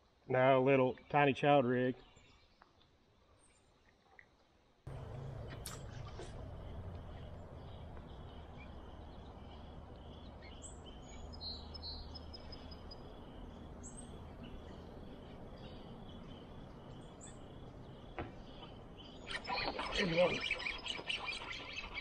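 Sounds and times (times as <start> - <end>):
steady low hiss: 4.9 - 19.3
high bird chirps: 4.9 - 22.0.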